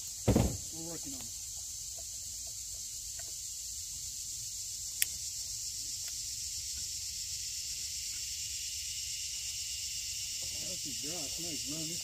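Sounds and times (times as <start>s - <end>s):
insect chorus hiss: 0.0s - 12.0s.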